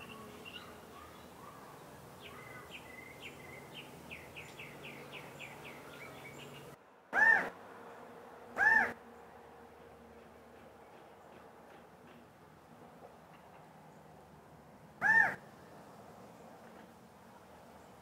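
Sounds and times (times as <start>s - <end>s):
quail calls: 7.2s - 7.5s, 8.6s - 9.0s, 15.0s - 15.4s.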